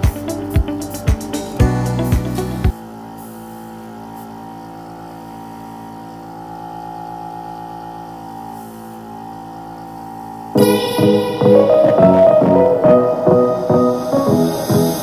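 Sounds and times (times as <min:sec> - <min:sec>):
sustained chord background music: 0:00.0 - 0:02.8, 0:10.6 - 0:15.0.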